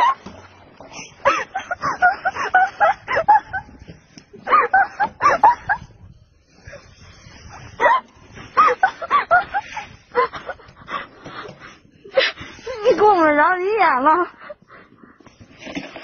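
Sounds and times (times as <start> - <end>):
people laughing and squealing: 1.3 - 6.0, 7.6 - 10.9.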